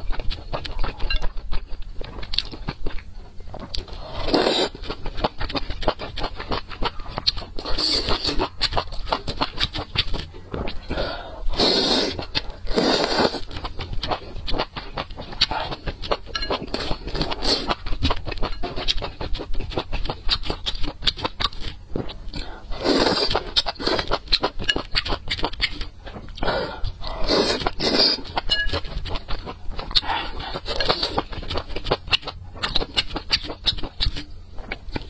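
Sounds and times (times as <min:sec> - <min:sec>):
wet chewing: 0:00.0 - 0:35.0
slurping: 0:03.7 - 0:05.0, 0:09.4 - 0:13.6, 0:22.3 - 0:24.2, 0:25.0 - 0:31.4.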